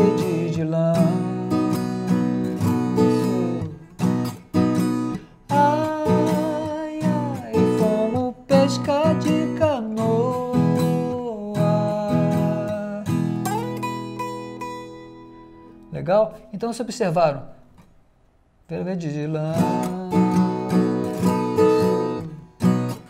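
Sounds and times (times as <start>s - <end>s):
person singing: 0.0s - 3.9s, 5.5s - 13.7s, 18.7s - 22.2s
guitar strumming: 0.0s - 16.4s, 19.3s - 23.0s.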